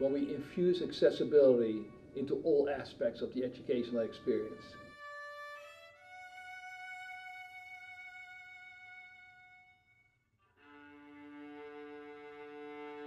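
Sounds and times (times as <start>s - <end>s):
solo violin bowed notes: 0.0s - 13.0s.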